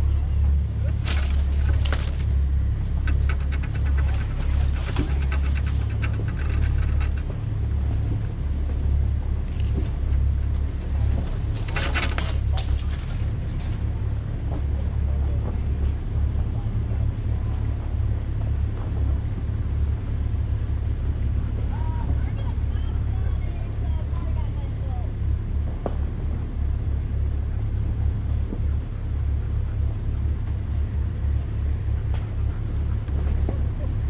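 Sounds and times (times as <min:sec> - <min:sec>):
suv engine low rumble: 0:00.0 - 0:34.0
scraping and rattling: 0:00.4 - 0:14.7.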